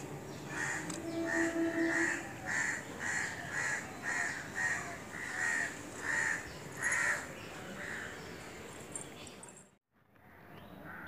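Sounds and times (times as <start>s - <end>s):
bird calling: 0.3s - 7.2s.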